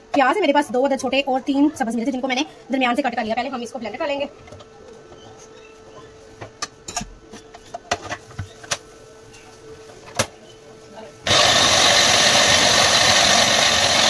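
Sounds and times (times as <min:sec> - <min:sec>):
food processor motor chopping: 0:11.3 - 0:14.0.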